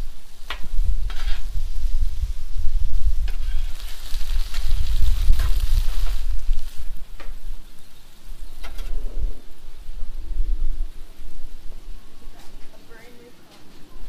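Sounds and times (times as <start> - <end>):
food sizzling on a griddle: 0.0 - 10.0
metal spatula scraping steel: 1.0 - 1.5.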